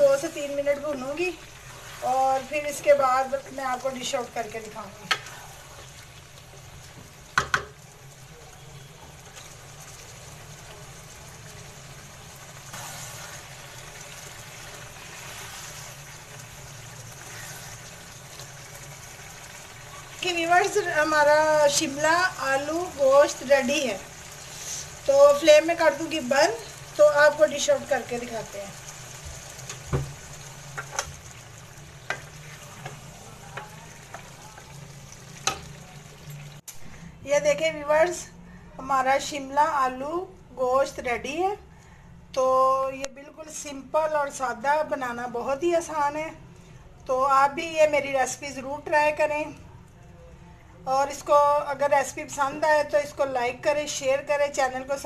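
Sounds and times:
curry sizzling in a pan: 0.0 - 36.7
wooden spoon stirring curry: 0.2 - 26.0, 29.0 - 36.3
spoon knocking against pan: 7.4 - 7.8.

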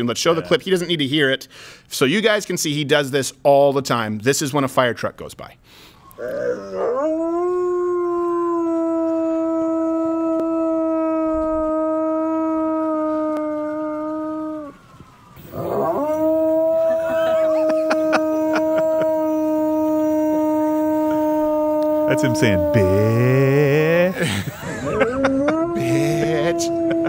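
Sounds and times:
large dog howling: 6.2 - 14.8, 15.4 - 24.2, 24.8 - 27.0.

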